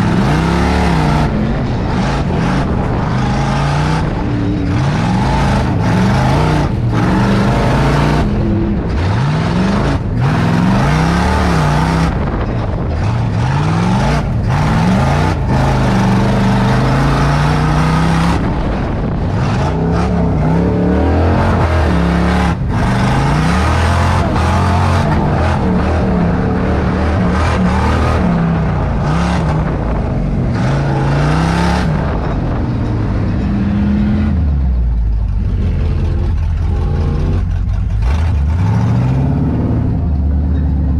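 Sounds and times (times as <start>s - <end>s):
road and chassis noise: 0.0s - 40.9s
truck engine revving: 0.0s - 40.9s.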